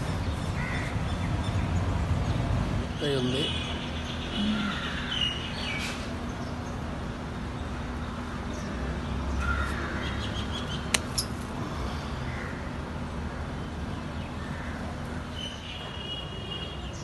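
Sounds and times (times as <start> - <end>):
faint bird calls: 4.2 - 6.0
pruning secateurs snipping: 10.9 - 11.4.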